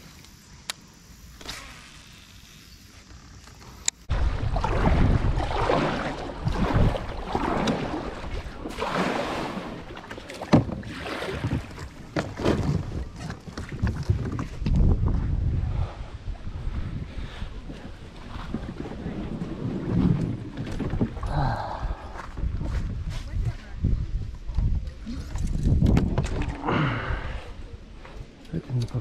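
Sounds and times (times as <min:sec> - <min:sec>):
wind buffeting microphone: 0:04.1 - 0:10.0, 0:10.6 - 0:29.0
paddle strokes splashing water: 0:04.1 - 0:14.7.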